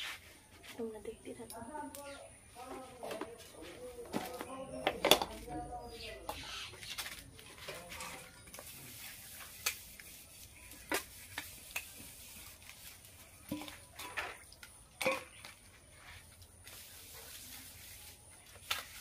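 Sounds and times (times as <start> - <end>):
soft scrubbing: 7.4 - 14.0, 15.8 - 19.0.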